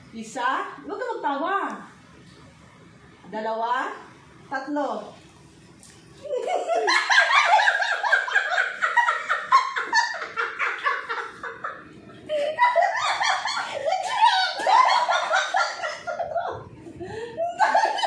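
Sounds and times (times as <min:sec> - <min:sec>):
women laughing hard: 0:06.2 - 0:18.0.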